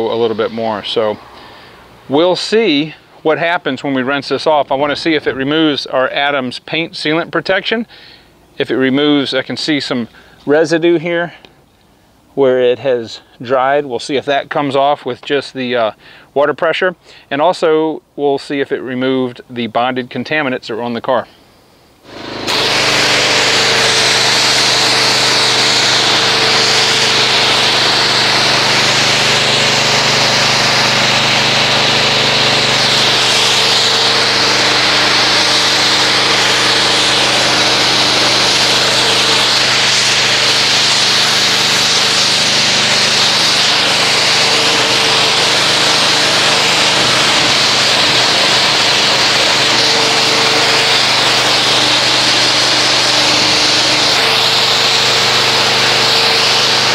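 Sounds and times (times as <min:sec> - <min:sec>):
pressure washer motor hum: 0:00.0 - 0:05.9, 0:22.0 - 0:56.9
water spray hissing: 0:22.0 - 0:56.9.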